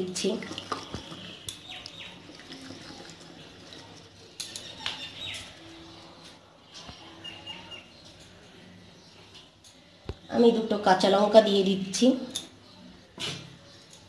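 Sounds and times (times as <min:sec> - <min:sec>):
birds chirping: 0:00.8 - 0:02.4, 0:04.4 - 0:10.7.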